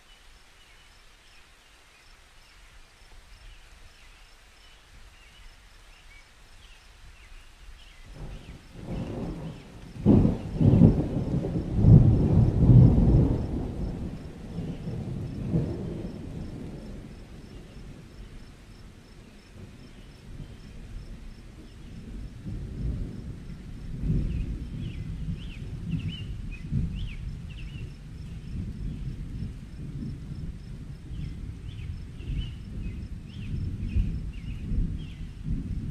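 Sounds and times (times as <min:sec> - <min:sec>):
rolling thunder: 0:08.1 - 0:35.9.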